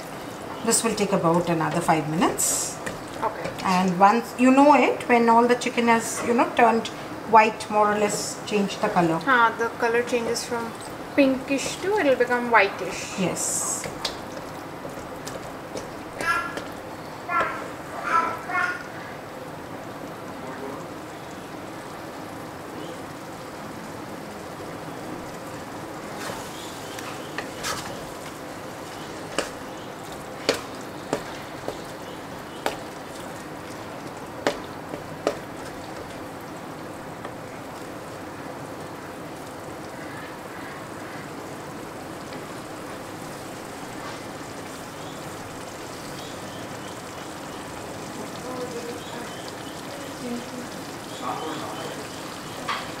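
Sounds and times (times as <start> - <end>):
spatula knocking against pan: 13.8 - 16.8, 28.9 - 29.8, 30.4 - 33.0, 34.4 - 36.1
meat sizzling in a pan: 21.1 - 53.0.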